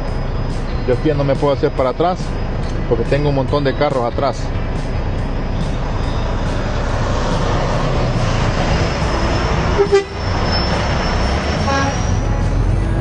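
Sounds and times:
diesel truck engine rumble: 0.0s - 13.0s
vehicle horn toots: 9.8s - 10.4s, 11.6s - 12.6s.

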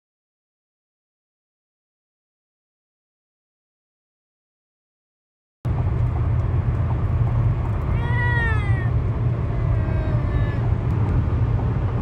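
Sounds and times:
car road and engine noise: 5.7s - 12.0s.

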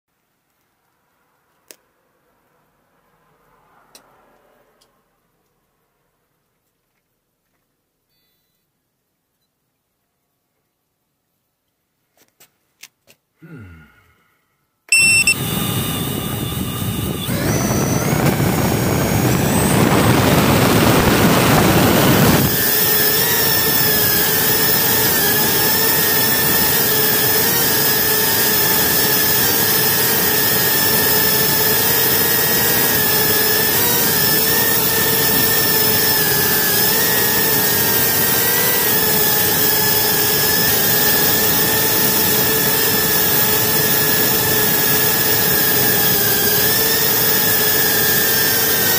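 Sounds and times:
drone propellers whining: 14.9s - 48.9s.

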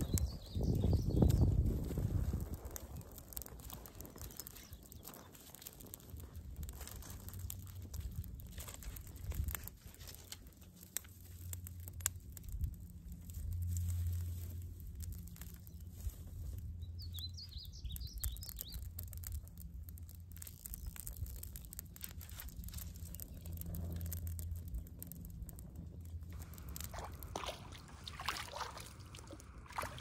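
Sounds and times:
twigs crackling in a fire: 0.0s - 30.0s
bird chirping: 16.8s - 18.9s
low rumble: 18.8s - 30.0s.

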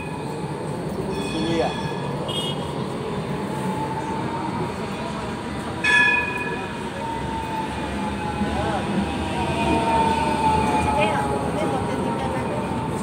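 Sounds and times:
tram ringing tone: 0.0s - 13.0s
tram rumbling with high whine: 0.0s - 13.0s.

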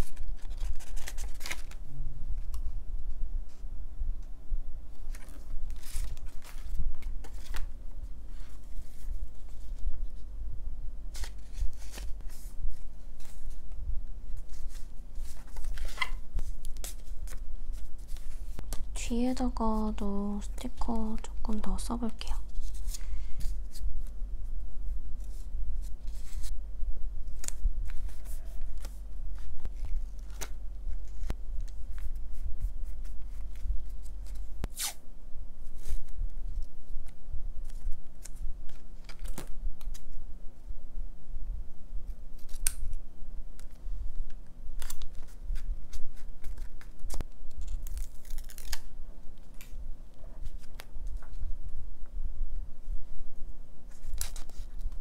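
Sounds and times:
paper stickers rustling: 0.0s - 1.8s, 5.0s - 7.7s, 14.3s - 18.8s
steady low hum: 0.0s - 55.0s.

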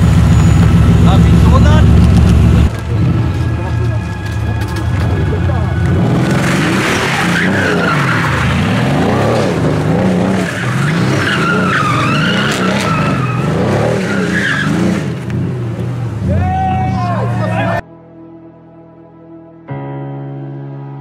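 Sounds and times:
car engine revving: 0.0s - 17.8s
tyres squealing: 6.0s - 9.2s, 10.2s - 15.2s.

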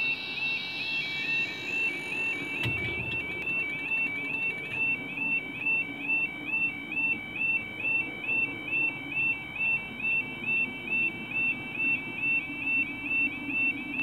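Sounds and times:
level crossing alarm warbling: 0.0s - 6.3s.

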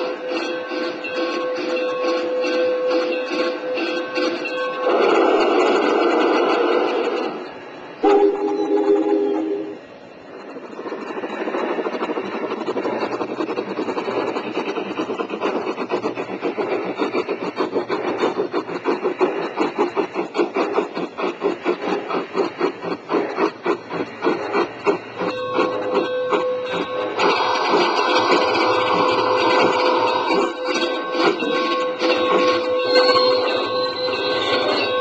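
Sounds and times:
model steam locomotive rattling: 0.0s - 35.0s
steady tone: 8.0s - 11.7s.

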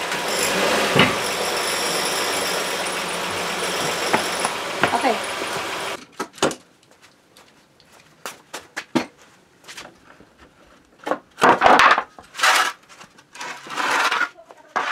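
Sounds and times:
light footsteps: 6.8s - 10.5s
scraping and rustling: 12.2s - 14.9s.

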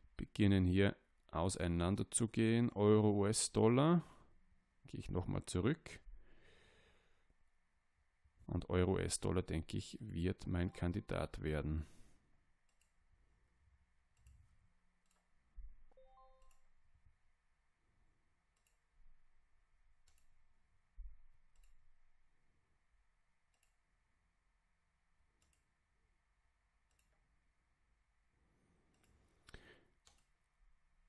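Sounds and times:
faint computer mouse clicks: 18.6s - 18.8s, 23.5s - 23.8s, 25.4s - 25.7s, 28.9s - 30.3s.

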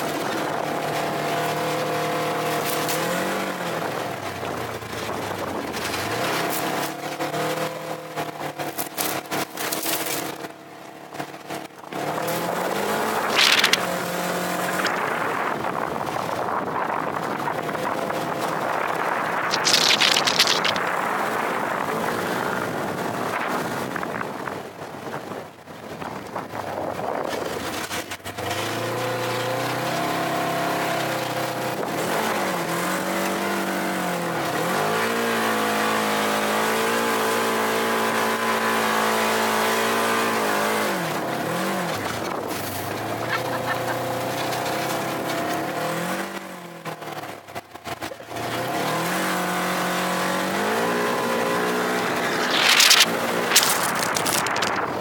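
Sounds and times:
tyres churning loose dirt: 51.7s - 55.0s.

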